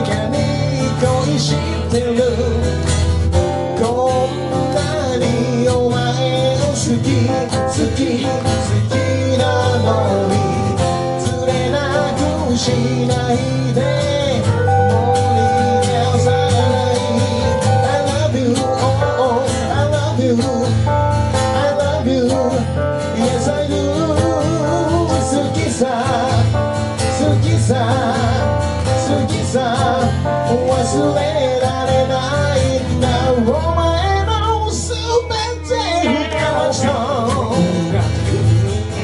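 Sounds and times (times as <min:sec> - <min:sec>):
electric keyboard: 0:00.0 - 0:39.0
steady bass line: 0:00.0 - 0:39.0
strummed acoustic guitar: 0:00.0 - 0:39.0
wavering lead melody: 0:07.1 - 0:32.3, 0:33.4 - 0:39.0.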